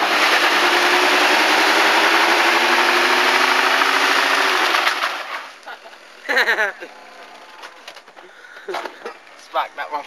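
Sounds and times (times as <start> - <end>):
car engine at high revs: 0.0 - 5.5.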